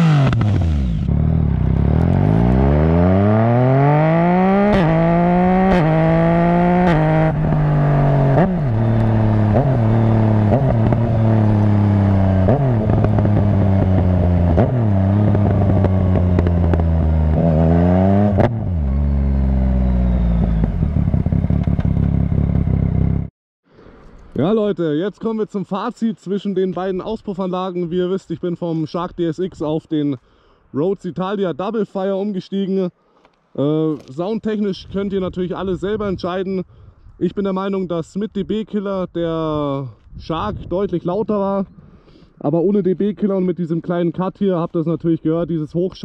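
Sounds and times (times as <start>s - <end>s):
motorcycle engine accelerating: 0.0s - 23.3s.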